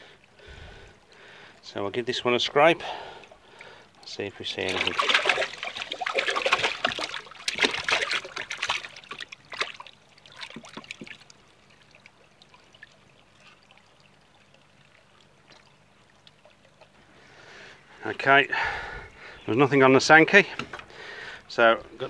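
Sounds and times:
water dripping and trickling: 0.0 - 18.5
water splashing in a plastic bowl: 2.9 - 17.0.

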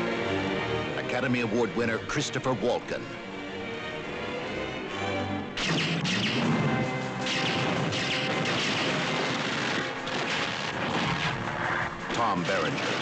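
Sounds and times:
film score music: 0.0 - 13.0
explosions: 5.6 - 13.0
gunfire: 5.6 - 13.0.

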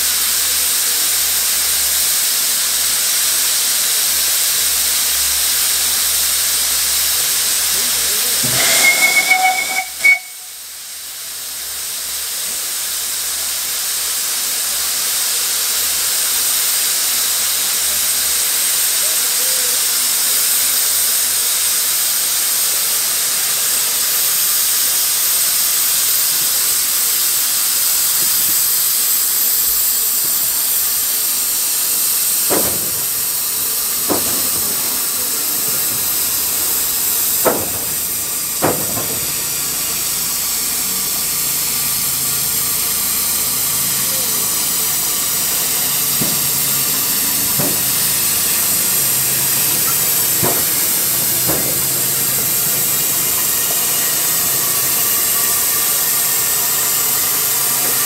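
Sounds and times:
steam hissing: 0.0 - 58.0
steam locomotive whistle: 8.1 - 10.7
sharp knocks: 32.5 - 33.4, 34.0 - 35.1, 37.4 - 39.5, 49.7 - 52.0.

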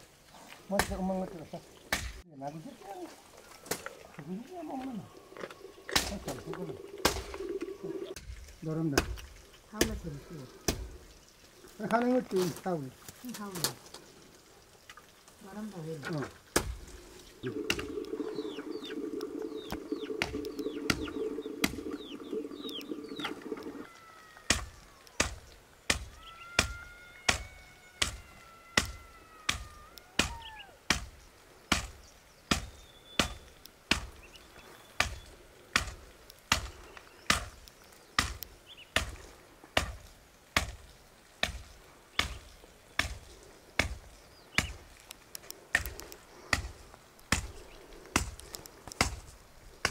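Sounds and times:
birds chirping: 0.0 - 49.9
steady hum: 17.2 - 23.8
blade chopping wood: 31.7 - 34.2.

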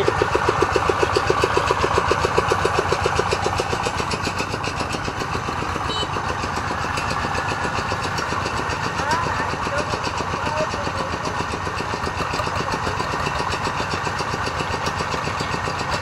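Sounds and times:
diesel engine chugging under load: 0.0 - 16.0.

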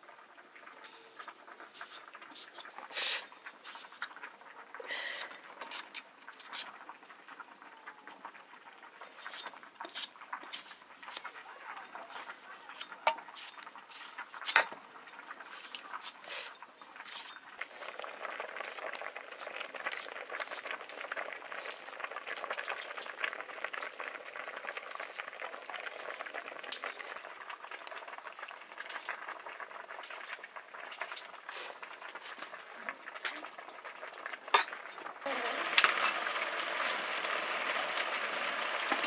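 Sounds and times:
rice boiling and bubbling: 0.0 - 39.0.

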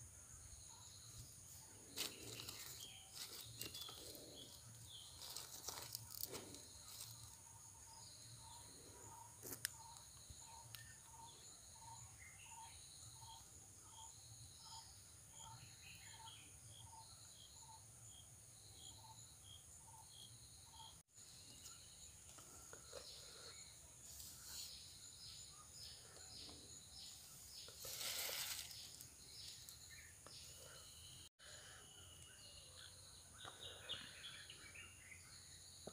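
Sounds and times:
insect chirps: 0.0 - 35.9
insect drone: 0.0 - 35.9
rustle: 27.6 - 29.7.

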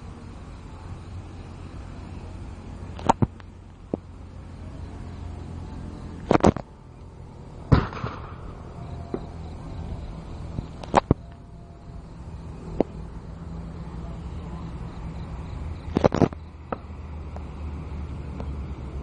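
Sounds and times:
steady low rumble: 0.0 - 19.0
sharp cracks and pops: 3.0 - 4.0, 6.2 - 6.7, 7.7 - 9.3, 10.8 - 11.4, 15.8 - 17.5
loud bang: 7.7 - 9.3.

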